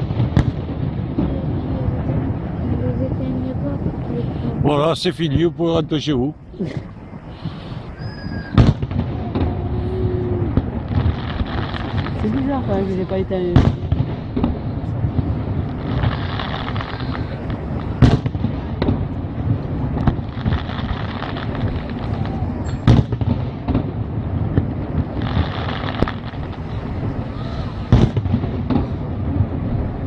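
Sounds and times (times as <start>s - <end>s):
low rumble: 0.0s - 30.0s
firework shells bursting: 6.8s - 29.6s.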